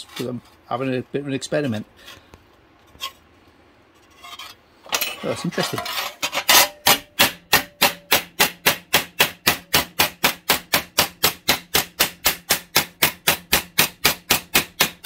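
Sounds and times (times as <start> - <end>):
hammer blows on sheet steel: 6.6 - 15.0.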